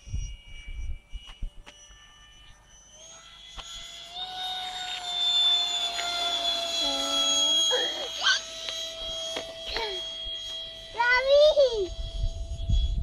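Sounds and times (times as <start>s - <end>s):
wind rumbling on microphone: 0.0s - 1.7s, 10.9s - 13.0s
model jet fan whining: 0.0s - 13.0s.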